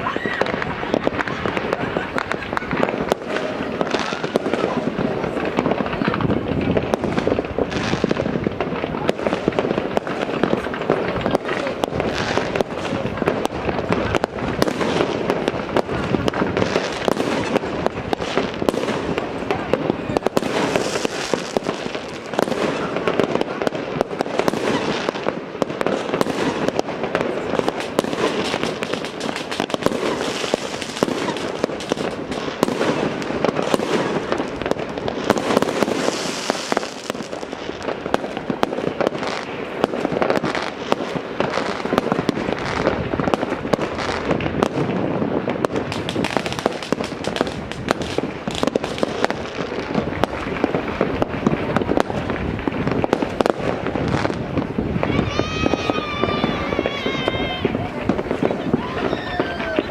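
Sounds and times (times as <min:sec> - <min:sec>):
distant fireworks crackling and popping: 0:00.0 - 0:59.9.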